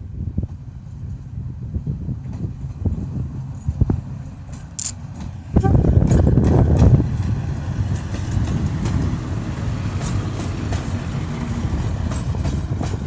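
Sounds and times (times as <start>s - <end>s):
diesel locomotive engine rumble: 0.0s - 13.0s
wheels clicking on rails: 9.8s - 13.0s.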